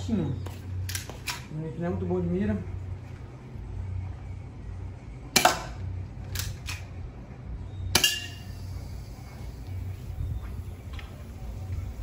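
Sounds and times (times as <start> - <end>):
airsoft pistol shots: 5.4 - 5.8.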